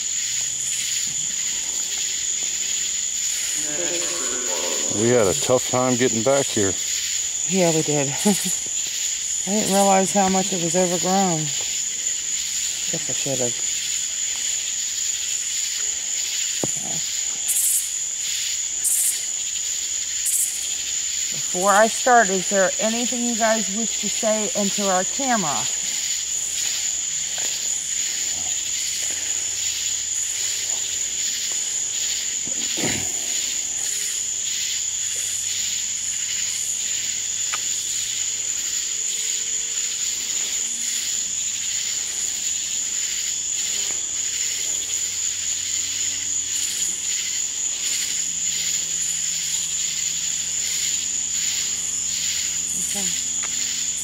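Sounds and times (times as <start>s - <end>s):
crickets chirping: 0.0s - 54.0s.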